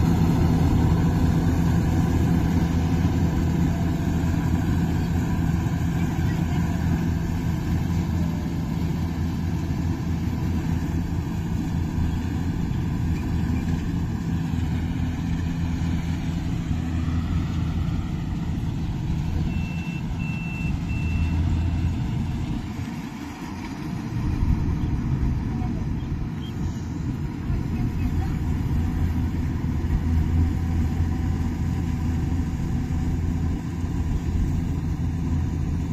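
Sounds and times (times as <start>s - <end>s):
diesel engine running: 0.0s - 35.9s
short high beeps: 19.5s - 21.4s.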